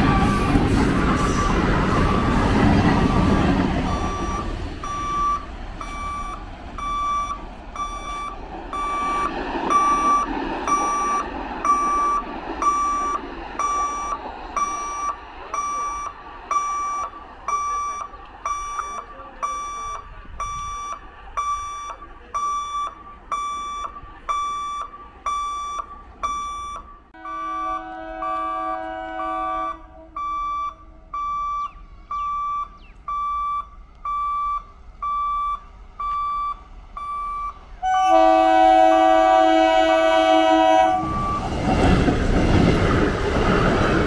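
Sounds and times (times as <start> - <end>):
electric train rumbling: 0.0 - 44.0
level crossing warning beeps: 1.3 - 38.2, 38.9 - 42.0.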